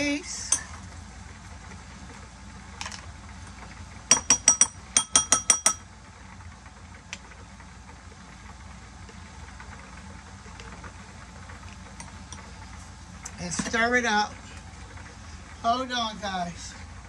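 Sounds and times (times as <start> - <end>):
metal spoon clinking on rim: 4.1 - 5.8.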